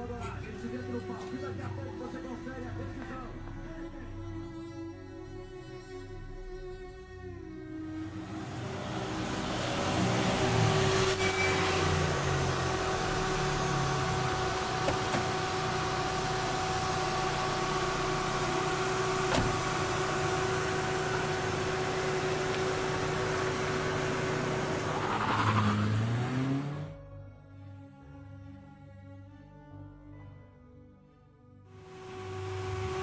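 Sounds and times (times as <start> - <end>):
street noise: 0.0 - 3.8, 7.7 - 27.0
car engine running: 8.1 - 27.0.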